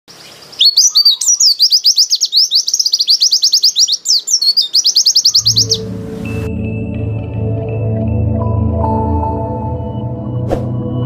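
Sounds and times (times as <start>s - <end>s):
bird singing high chirps: 0.1s - 6.5s
soft music: 5.4s - 11.0s.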